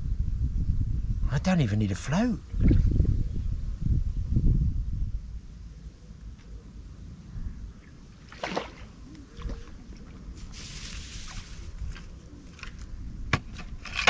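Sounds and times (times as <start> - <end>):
fish splashing at the surface: 8.2 - 10.1.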